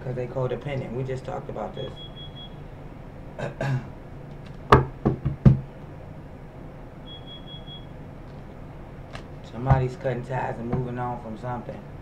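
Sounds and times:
faint high beep: 1.8 - 2.6, 7.1 - 7.9
sharp knocks: 4.7 - 5.7.

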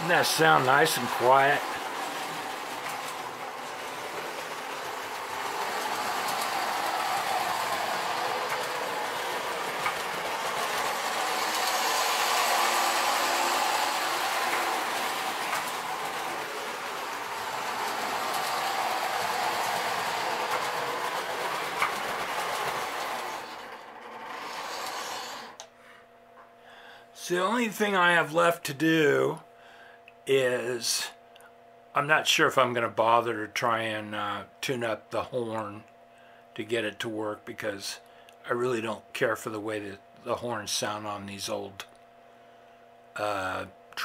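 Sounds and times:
toy train motor whirring: 0.0 - 25.6
wheels clicking over rails: 0.0 - 25.7.

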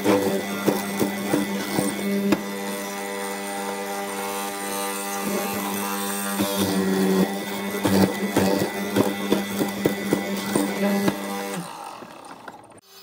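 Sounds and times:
mortiser motor humming: 0.0 - 13.0.

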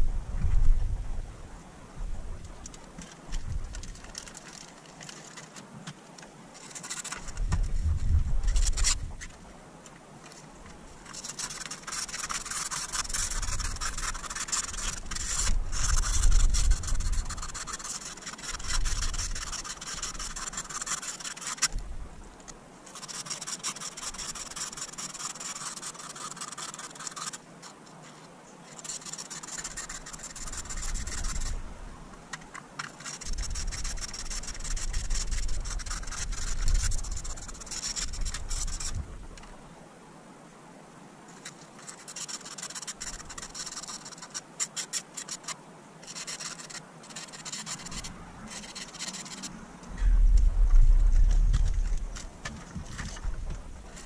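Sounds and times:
low handling thuds: 49.8 - 53.9
cardboard and paper rustling: 50.2 - 54.0.

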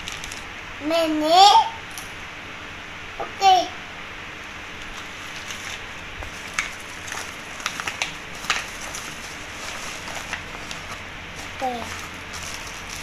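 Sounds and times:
plastic bags crinkling: 0.0 - 0.4, 4.9 - 13.0.

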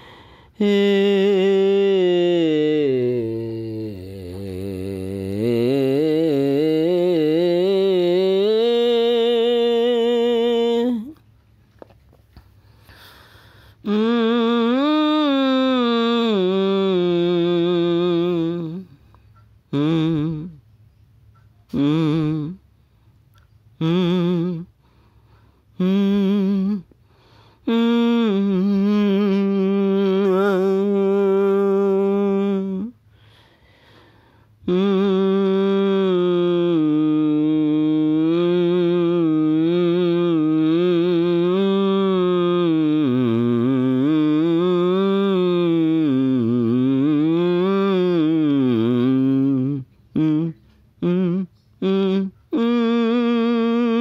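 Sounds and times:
person humming a melody: 0.0 - 11.2, 13.8 - 20.8, 21.4 - 22.7, 23.7 - 24.8, 25.7 - 27.0, 27.6 - 33.1, 34.6 - 54.0
person singing chant-like note: 0.6 - 11.2, 27.7 - 33.0.

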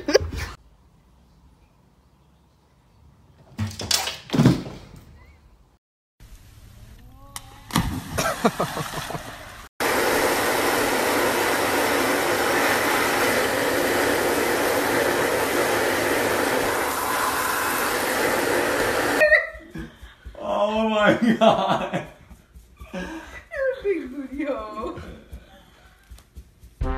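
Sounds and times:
hair dryer blowing: 9.8 - 19.3.

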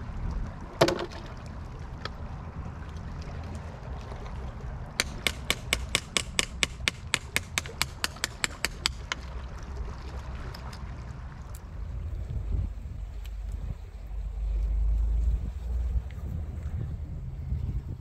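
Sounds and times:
surf rumble: 0.0 - 18.0
wind: 0.0 - 18.0
metal tool tapping shells: 5.0 - 9.2.

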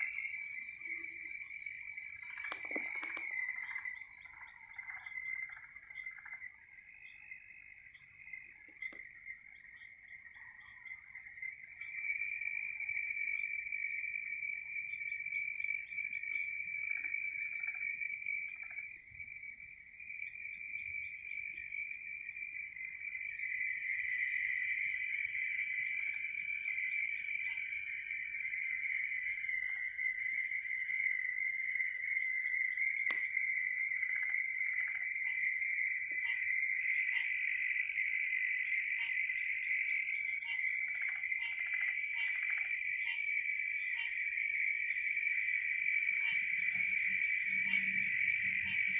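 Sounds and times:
frog calls: 0.0 - 48.9
insects trilling: 0.0 - 48.9.

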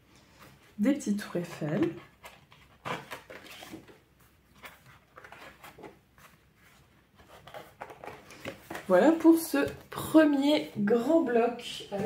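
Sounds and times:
paper pages rustling and flapping: 1.3 - 10.0.

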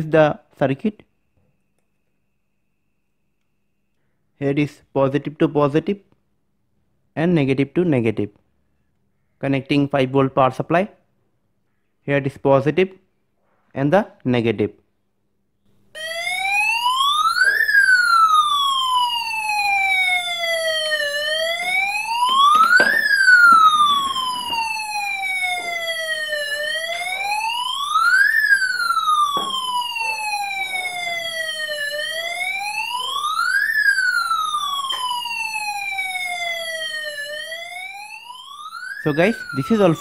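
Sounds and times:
electronic siren wailing: 16.0 - 40.0.

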